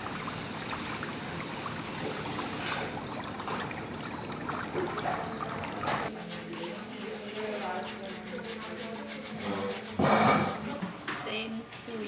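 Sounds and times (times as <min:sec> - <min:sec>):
footbath water jets rushing: 0:00.0 - 0:06.1.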